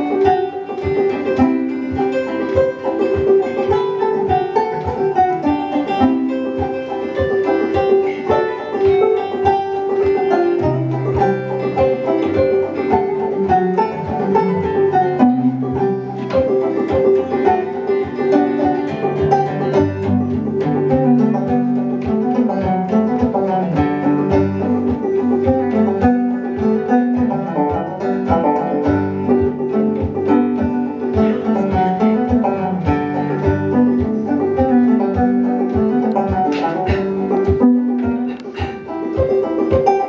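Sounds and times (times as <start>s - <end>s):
banjo tune: 0.0s - 40.0s.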